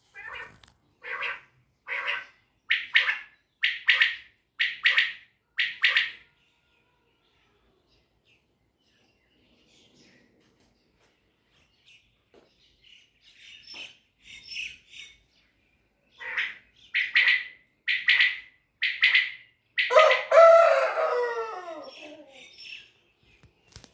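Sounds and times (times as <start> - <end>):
quail calling: 0.1 - 6.2, 16.2 - 22.5.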